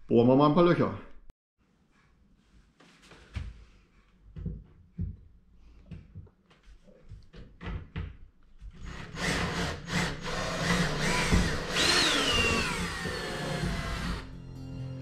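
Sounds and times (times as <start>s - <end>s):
cordless drill boring: 8.8s - 14.3s.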